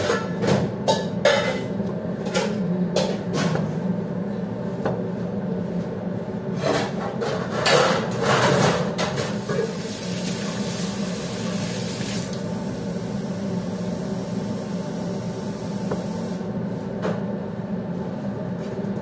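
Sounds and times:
steady mechanical hum: 0.0s - 19.0s
hiss: 9.4s - 13.0s.

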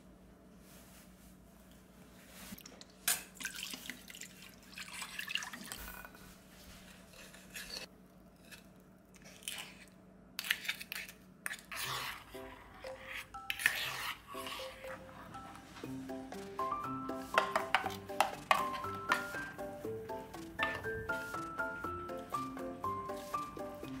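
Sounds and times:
liquid pouring: 2.6s - 5.9s
soft background music: 12.2s - 24.0s
spoons clinking on saucepan: 17.4s - 19.4s.

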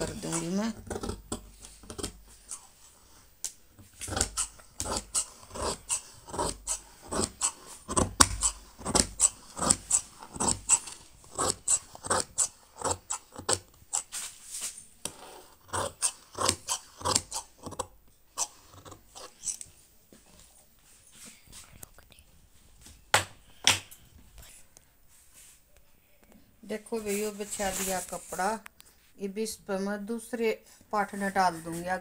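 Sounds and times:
shears snipping cloth: 0.0s - 2.7s, 4.0s - 17.8s.

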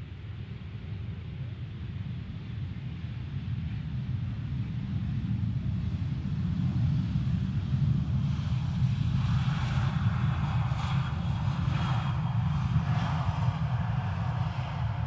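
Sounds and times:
jet engines rumbling: 3.8s - 15.0s.

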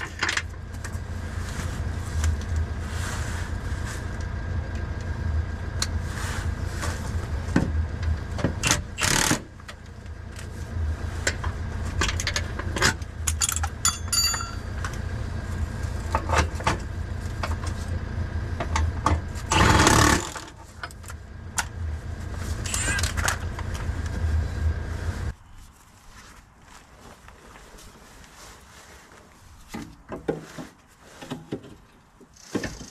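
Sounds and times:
steady low rumble: 0.0s - 29.7s
rasping bursts: 8.6s - 9.5s, 19.5s - 20.6s
metal parts clinking: 13.3s - 14.7s.

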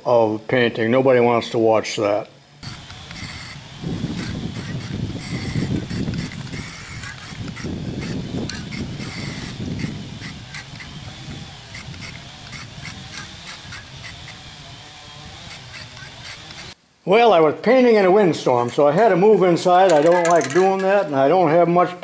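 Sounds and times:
spray paint can hissing: 2.6s - 16.8s
wind buffeting microphone: 2.6s - 16.8s.

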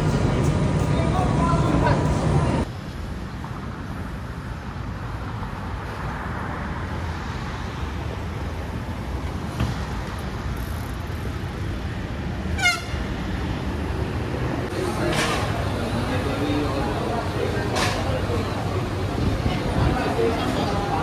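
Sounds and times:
city traffic rumble: 0.0s - 21.0s.

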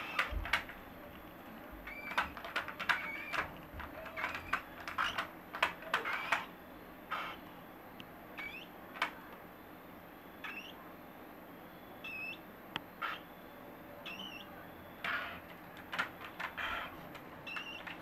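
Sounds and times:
baby cockatiels chirping: 8.4s - 8.7s, 10.4s - 10.8s, 12.0s - 12.4s, 13.0s - 13.3s, 14.0s - 14.5s.

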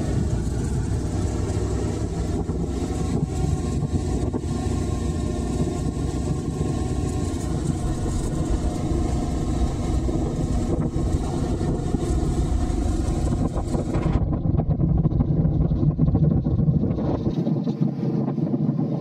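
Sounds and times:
tyres rumbling on cobblestones: 0.0s - 17.3s
motorcycle engine running: 0.0s - 19.0s
wind on microphone: 0.0s - 19.0s.

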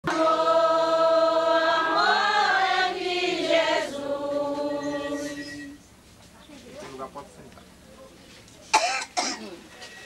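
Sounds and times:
voices singing a slow chant: 0.0s - 5.9s.

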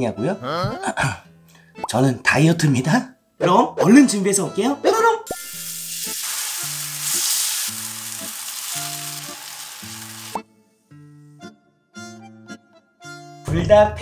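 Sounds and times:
light background music: 0.0s - 14.0s
mushrooms sizzling in oil: 5.4s - 10.4s.

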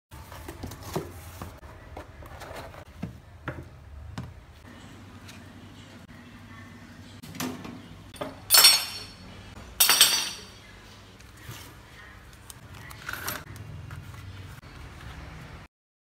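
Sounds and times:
metal and glass clinks: 8.2s - 9.2s, 9.8s - 10.5s.

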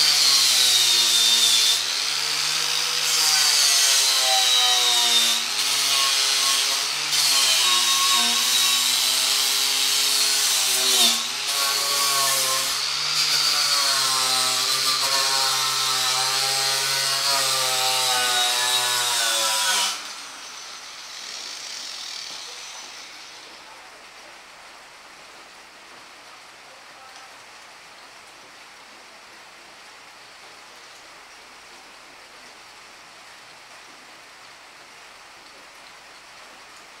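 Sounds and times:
faint steady hiss: 0.0s - 37.0s
power tool motor whine: 19.6s - 23.5s.

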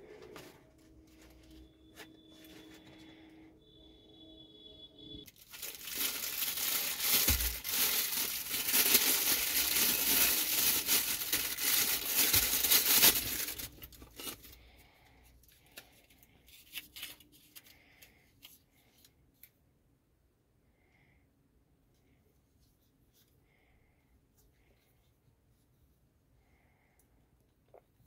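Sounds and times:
plastic wrapping crinkling: 5.2s - 14.6s.

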